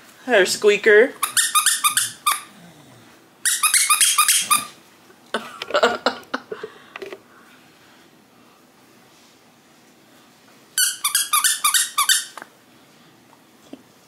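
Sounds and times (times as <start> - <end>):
squeaky dog toy squeaking: 1.2 - 2.5, 3.4 - 4.8, 10.8 - 12.4.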